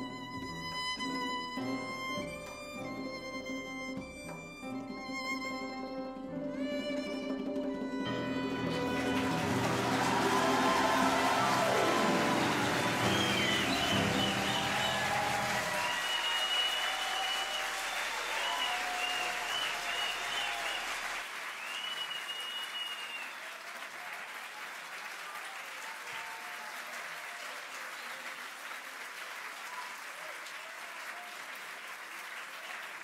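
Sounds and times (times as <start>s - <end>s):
audience applauding: 8.1s - 33.0s.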